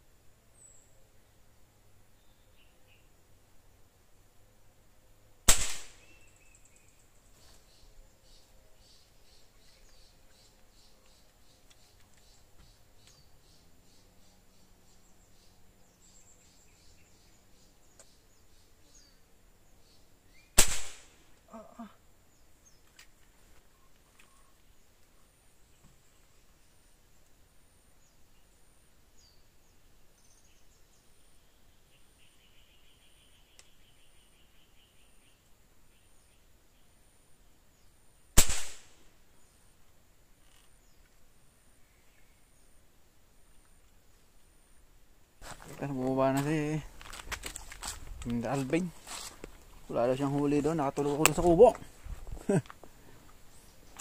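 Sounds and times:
gunshot: 5.5s - 6.2s, 20.6s - 21.2s, 38.4s - 39.0s.

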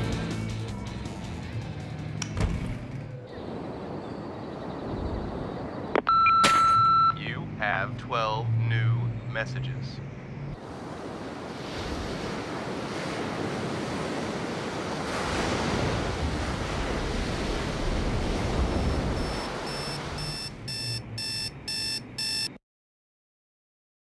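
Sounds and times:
digital alarm clock beeping: 6.1s - 7.2s, 18.8s - 22.6s
ocean surf washing: 10.6s - 22.0s.

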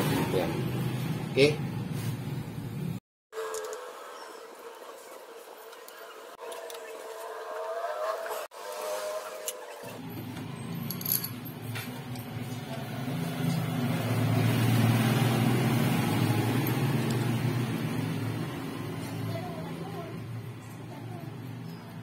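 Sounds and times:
vehicle engine passing: 6.6s - 21.8s.

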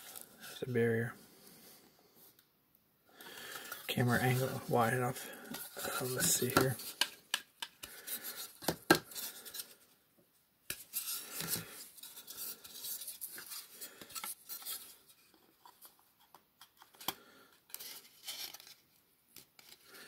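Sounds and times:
plastic rubbing and scraping: 3.5s - 9.8s.

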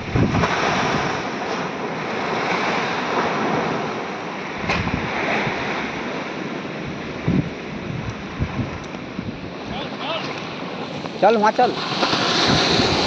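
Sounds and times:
surf breaking on concrete wall: 11.6s - 13.0s.

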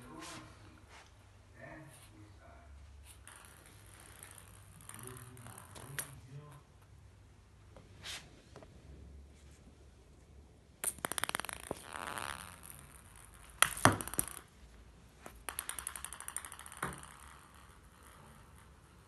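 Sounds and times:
ball bouncing on wooden floor: 3.0s - 6.2s, 10.8s - 14.5s, 15.2s - 19.0s.

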